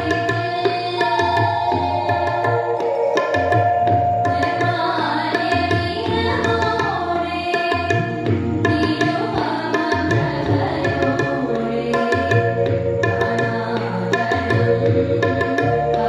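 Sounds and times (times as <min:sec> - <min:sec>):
woman singing: 0:00.0 - 0:02.6, 0:04.2 - 0:16.0
tabla strokes: 0:00.0 - 0:16.0.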